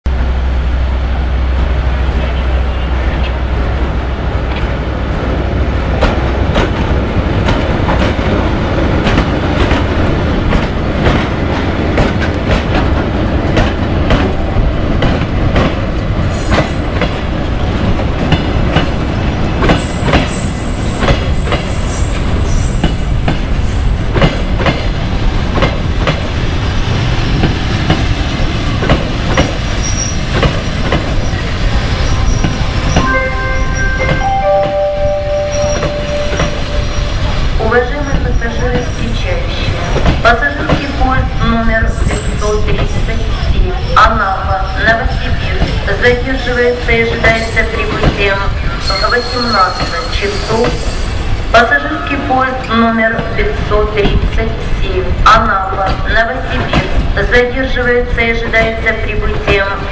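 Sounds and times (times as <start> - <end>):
train wheels clicking over rail joints: 5.9 - 32.7
high brake squeals: 29.8 - 30.2, 48.7 - 51.2.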